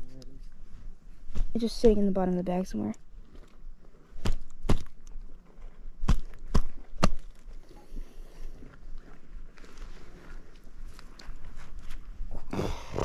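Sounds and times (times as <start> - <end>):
faint rustling: 6.7 - 12.5.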